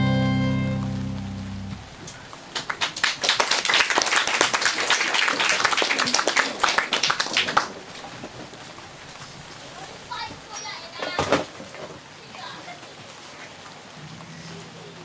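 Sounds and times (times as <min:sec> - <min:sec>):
audience applause: 0:02.5 - 0:07.9.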